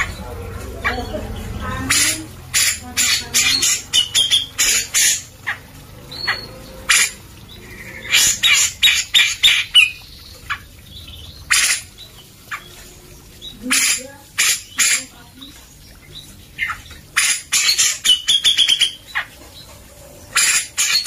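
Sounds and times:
bird harsh rasping calls: 0.0 - 19.7, 20.3 - 21.0.

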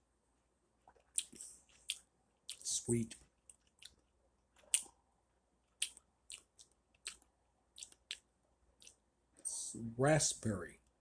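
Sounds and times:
lip smacks: 0.8 - 4.0, 4.6 - 5.0, 5.7 - 9.0
wet mouth clicks: 0.8 - 4.0, 4.6 - 5.0, 5.7 - 9.0.

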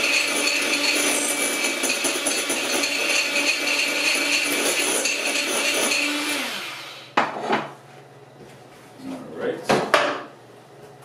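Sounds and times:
electric hand mixer whine: 0.0 - 7.2.

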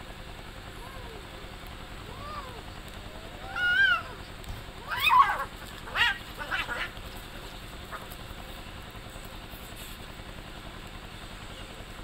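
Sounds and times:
cats yowling: 2.0 - 7.1.

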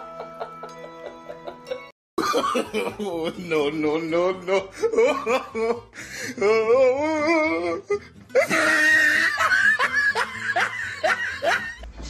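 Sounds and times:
person wailing: 6.4 - 9.5.

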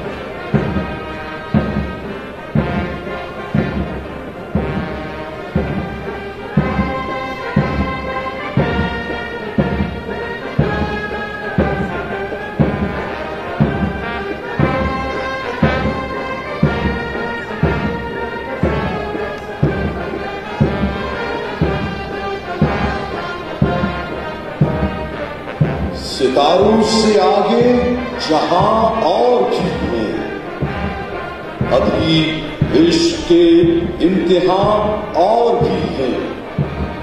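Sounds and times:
brass band playing a march: 0.0 - 37.0
drum beat: 0.0 - 37.0.

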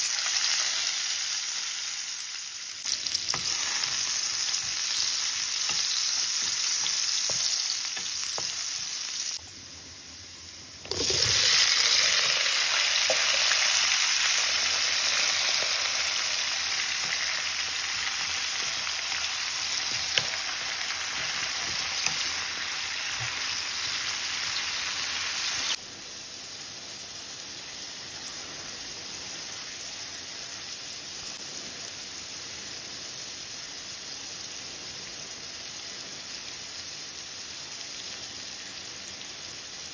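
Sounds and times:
food sizzling in oil: 0.0 - 39.9.

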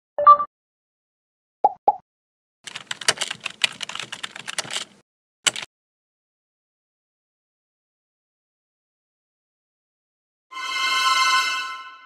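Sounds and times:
keyboard typing: 2.7 - 5.7.

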